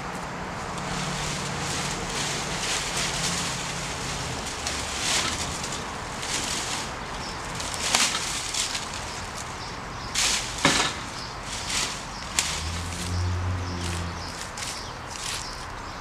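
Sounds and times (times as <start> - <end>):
dry leaves rustling: 0.0 - 16.0.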